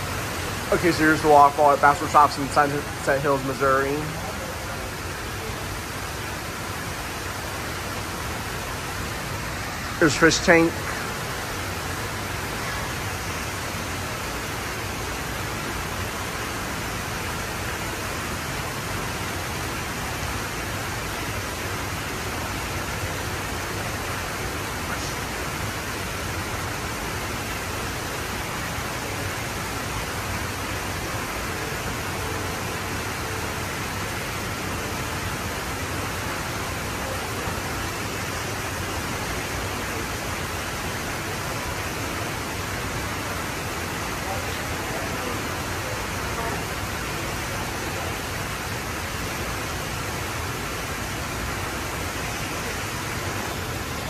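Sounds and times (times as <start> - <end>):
indoor waterfall rushing: 0.0 - 54.0.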